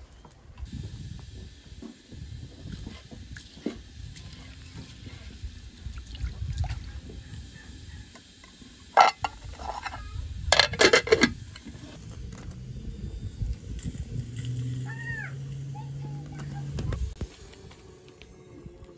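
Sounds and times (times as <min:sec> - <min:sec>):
steel pot lid clanking: 0:09.0 - 0:11.4.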